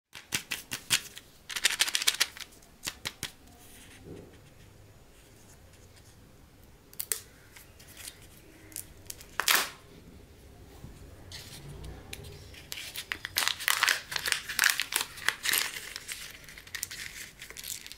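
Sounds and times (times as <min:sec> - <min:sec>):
foil wrapper crinkling: 0:12.6 - 0:17.9.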